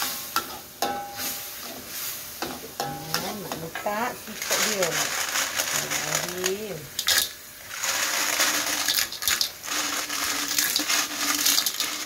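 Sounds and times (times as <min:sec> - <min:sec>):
shells rattling in a metal basin: 0:02.9 - 0:12.0.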